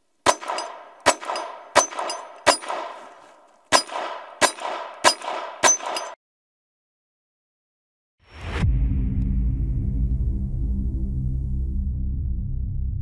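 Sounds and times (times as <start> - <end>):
pistol shots echoing: 0.2 - 6.2.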